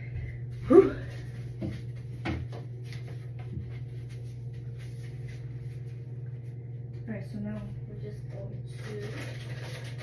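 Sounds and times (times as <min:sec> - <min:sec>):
low hum: 0:00.0 - 0:10.0
scratchy rubbing: 0:08.8 - 0:10.0.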